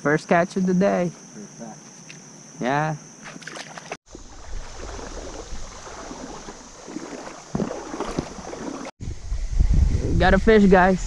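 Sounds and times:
creek water running: 0:03.2 - 0:09.0
wind rumbling on microphone: 0:04.1 - 0:11.0.

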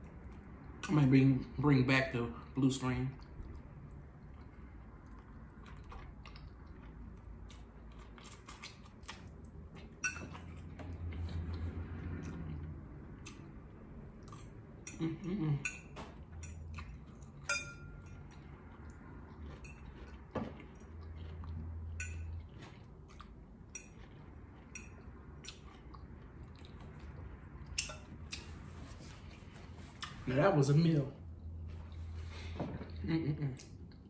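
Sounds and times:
chewing: 0:03.1 - 0:15.1, 0:16.4 - 0:30.2
fork clinking against ceramic bowl: 0:10.0 - 0:10.5, 0:15.6 - 0:18.3, 0:22.0 - 0:22.3.

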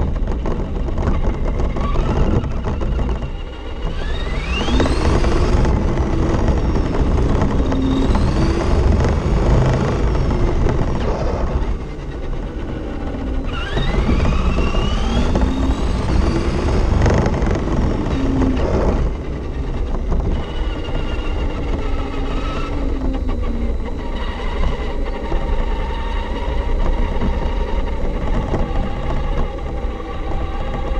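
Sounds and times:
tyre rumble on asphalt: 0:00.0 - 0:22.7
electric motor whine: 0:00.0 - 0:30.9.

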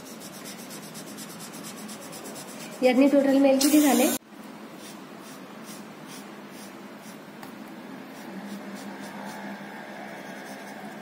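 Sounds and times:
marker scratching on paper: 0:00.0 - 0:03.2, 0:04.8 - 0:07.2, 0:08.1 - 0:11.0.

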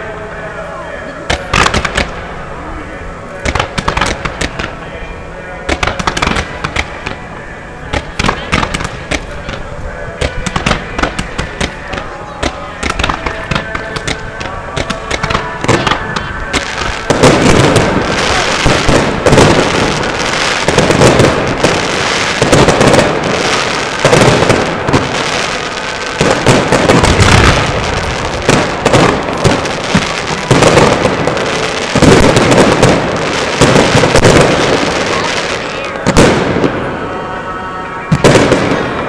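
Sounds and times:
fireworks bangs and crackling: 0:01.2 - 0:39.0.

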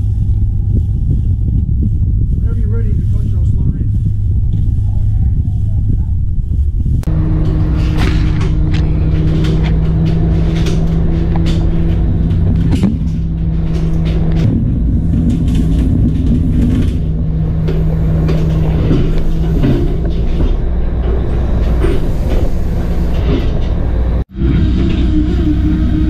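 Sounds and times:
machinery whine: 0:00.0 - 0:26.0
ship engine rumble: 0:00.0 - 0:26.0
clanks and knocks: 0:07.0 - 0:25.5.

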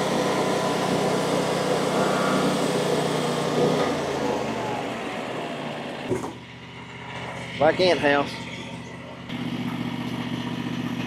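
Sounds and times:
saw blade cutting log: 0:00.0 - 0:05.0
small gas engine running: 0:00.0 - 0:11.0.

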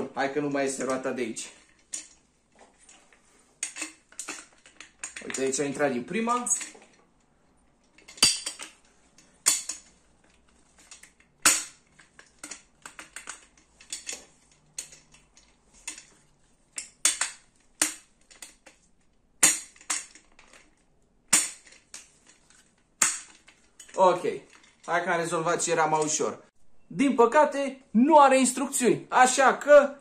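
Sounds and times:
sharp plastic clacks: 0:16.8 - 0:24.9.

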